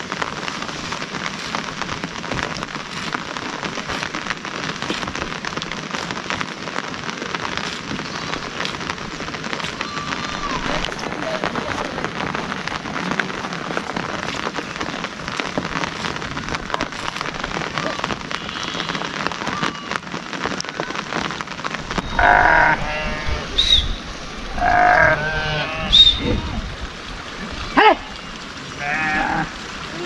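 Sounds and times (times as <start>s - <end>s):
steady rain falling: 0.0s - 30.0s
sheep bleating: 22.2s - 23.5s, 24.6s - 25.9s, 28.8s - 29.5s.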